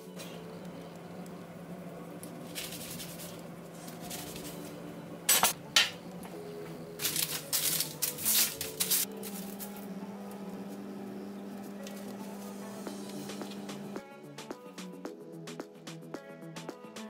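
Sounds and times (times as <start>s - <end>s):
soft background music: 0.0s - 17.0s
baking paper crinkling: 2.1s - 4.9s, 7.0s - 10.0s.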